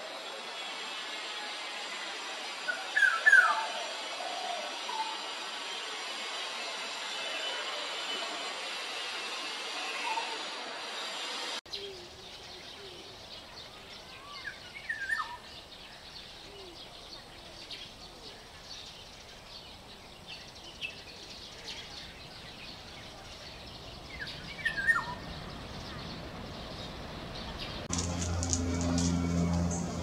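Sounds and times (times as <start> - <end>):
bird fluty whistled song: 2.7 - 3.7, 14.0 - 15.6, 24.1 - 25.2.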